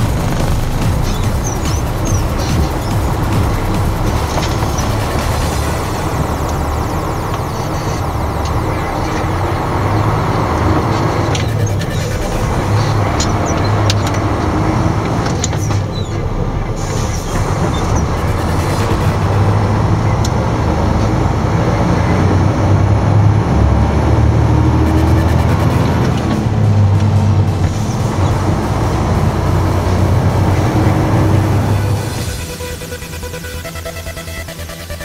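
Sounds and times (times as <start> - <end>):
road and tyre noise: 0.0 - 35.0
truck diesel engine driving: 0.0 - 35.0.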